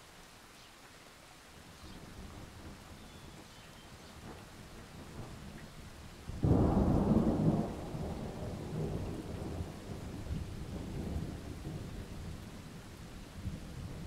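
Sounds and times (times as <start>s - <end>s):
steady rain: 0.0s - 14.0s
thunder clap and rumble: 6.3s - 12.5s.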